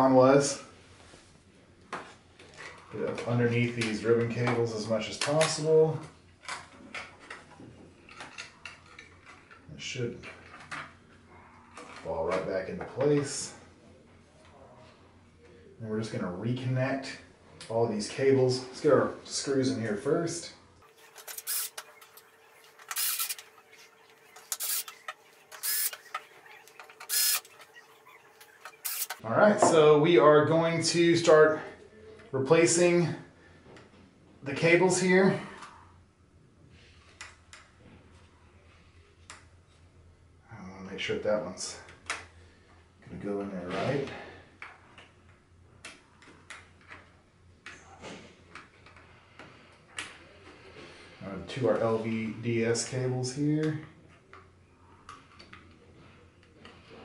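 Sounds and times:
screwdriver driving screws: 21.0s - 29.2s.

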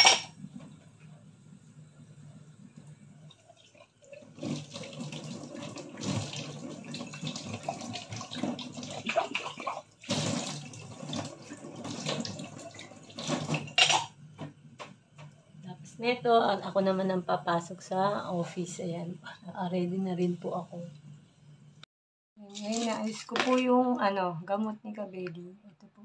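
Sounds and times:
glassware clinking: 0.0s - 0.3s.

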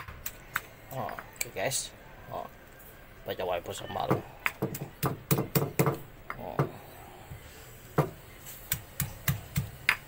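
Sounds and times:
pestle pounding in a mortar: 4.1s - 6.8s, 8.0s - 10.0s.

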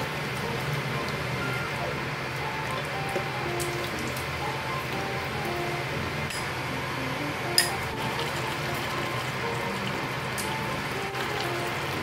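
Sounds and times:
food sizzling: 0.0s - 12.0s
soft background music: 0.0s - 12.0s.

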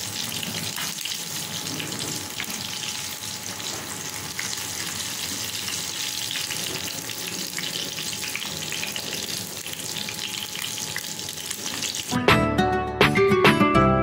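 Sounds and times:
food frying in hot oil: 0.0s - 12.2s
music with plucked notes: 12.1s - 14.0s.

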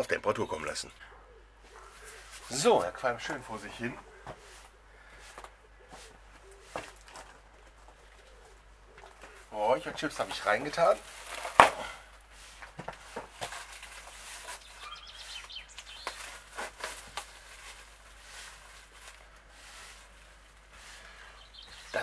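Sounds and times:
birds chirping: 0.0s - 11.0s, 14.3s - 16.6s, 20.7s - 22.0s.

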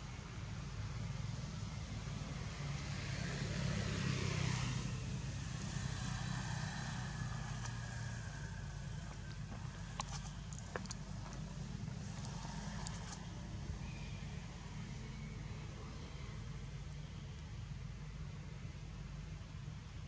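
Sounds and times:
outdoor low rumble: 4.7s - 20.0s.

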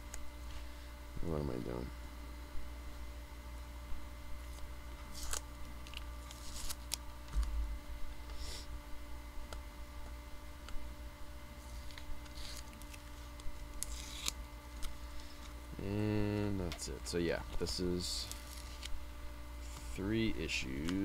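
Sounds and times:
steady low hum: 0.0s - 21.0s
tape peeling and packaging rustles: 4.4s - 7.7s, 11.6s - 15.7s, 17.5s - 19.0s.

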